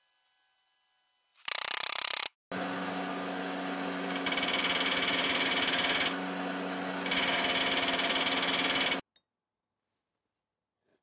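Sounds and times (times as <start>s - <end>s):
belt sander running: 2.5s - 9.0s
metal grinding on sanding belt: 2.6s - 9.0s.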